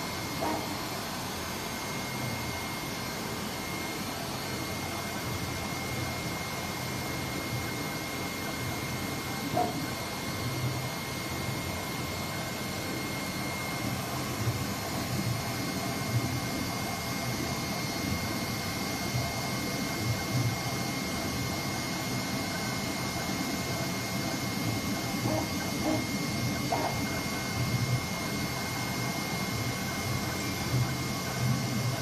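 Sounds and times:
cutting machine whirring hum: 0.0 - 32.0.

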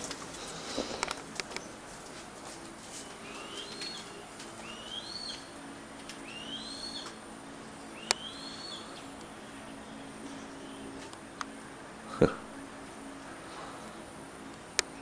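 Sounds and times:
hawk whistling calls: 3.1 - 5.5, 6.2 - 7.2, 7.9 - 9.1.

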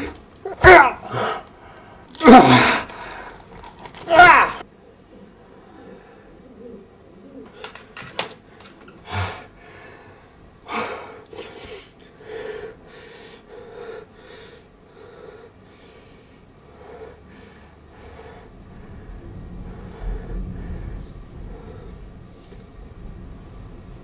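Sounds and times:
man breathing hard: 9.0 - 22.2.

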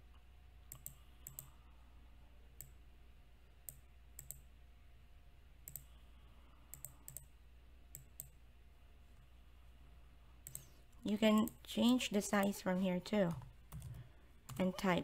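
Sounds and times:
low electrical hum: 0.0 - 15.0
computer mouse clicking: 0.7 - 1.6, 2.6 - 2.8, 3.6 - 4.5, 5.6 - 6.0, 6.7 - 7.3, 7.9 - 8.4, 10.4 - 10.7, 13.3 - 14.9.

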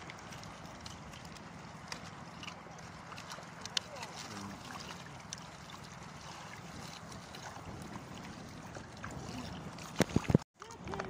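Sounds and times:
water sloshing and lapping: 0.0 - 11.0
wind buffeting microphone: 5.9 - 11.0.

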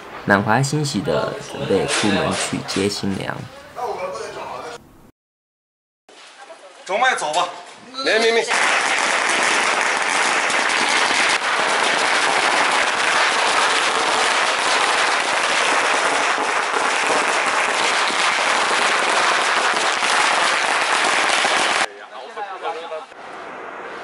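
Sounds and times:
firecrackers crackling: 8.5 - 21.9, 23.2 - 24.0.

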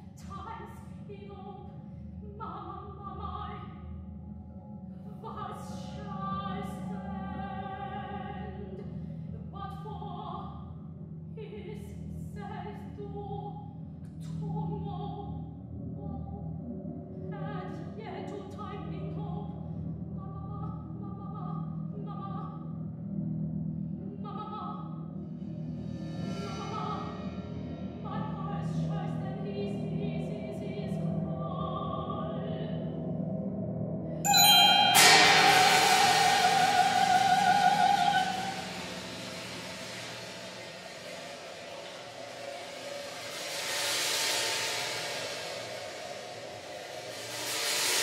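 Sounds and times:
soprano singing: 34.3 - 38.7.

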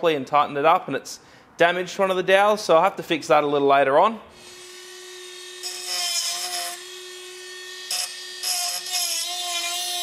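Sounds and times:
power grinder grinding metal: 4.4 - 10.0.

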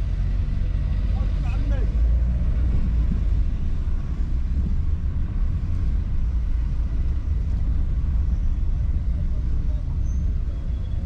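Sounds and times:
car engine and road noise: 0.0 - 11.0.

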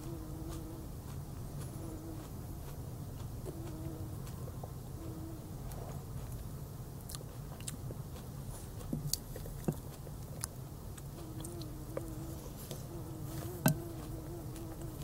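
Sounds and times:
buzzing insect: 0.0 - 0.9, 11.2 - 15.0
open-mouth chewing and lip smacking: 0.0 - 4.8, 5.6 - 15.0
steady low hum: 0.0 - 15.0.

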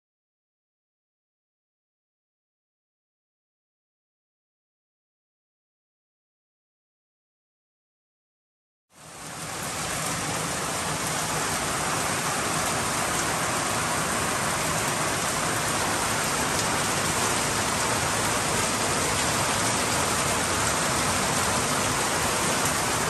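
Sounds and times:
heavy rain on plastic roof: 8.9 - 23.0.

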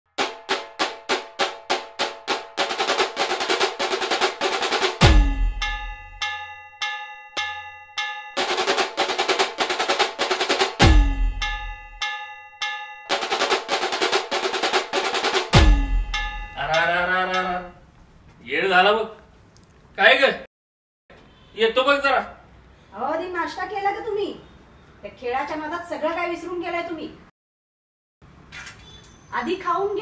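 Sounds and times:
drum-driven background music: 0.1 - 6.6, 7.4 - 17.8
deep drum boom: 5.0 - 6.0, 10.8 - 11.8, 15.6 - 16.6.

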